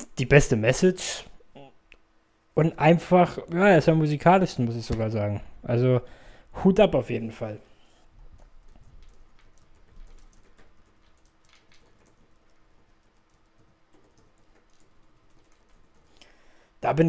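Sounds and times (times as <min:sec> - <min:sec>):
faint keyboard typing: 0:08.1 - 0:16.7.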